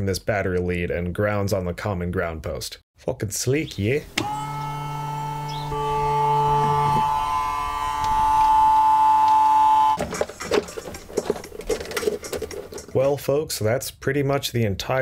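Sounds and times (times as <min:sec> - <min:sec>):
pump motor buzzing: 0:04.1 - 0:10.1
clicks: 0:04.2 - 0:04.8, 0:08.0 - 0:13.0.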